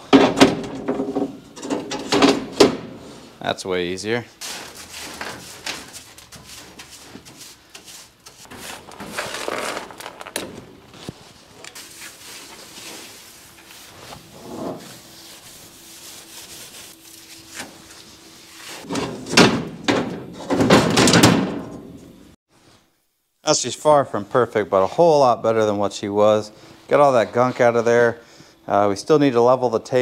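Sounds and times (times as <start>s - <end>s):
metal slats clunking: 0.0s - 3.2s, 18.8s - 22.0s
broom sweeping metal tray: 4.4s - 10.1s, 11.0s - 19.4s.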